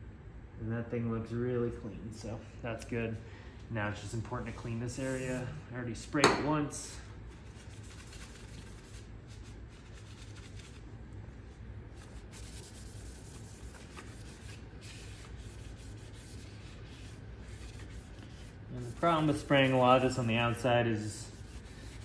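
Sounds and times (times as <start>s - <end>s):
paper towel rubbing on metal: 4.4s - 5.6s, 7.3s - 10.9s, 11.9s - 22.0s.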